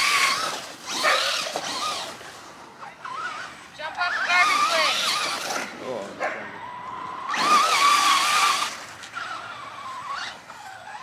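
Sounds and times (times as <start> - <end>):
electric motor whining: 0.0 - 11.0.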